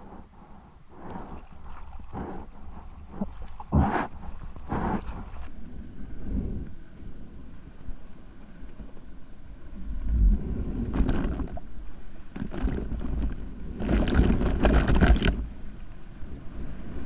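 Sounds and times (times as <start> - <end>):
low rumble: 0.0 - 14.8
ocean water sloshing and splashing: 0.4 - 5.5.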